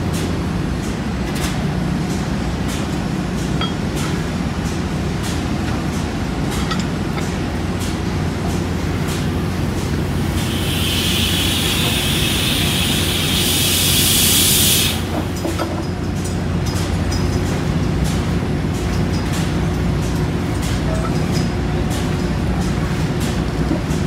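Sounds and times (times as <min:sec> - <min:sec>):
low hum of machinery: 0:00.0 - 0:24.0
loud hiss: 0:10.2 - 0:15.3.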